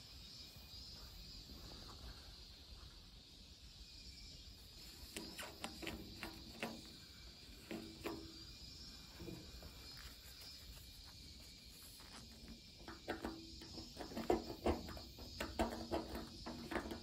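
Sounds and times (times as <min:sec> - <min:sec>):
faint steady hiss: 0:00.0 - 0:17.0
light clicks and taps on metal: 0:12.1 - 0:17.0.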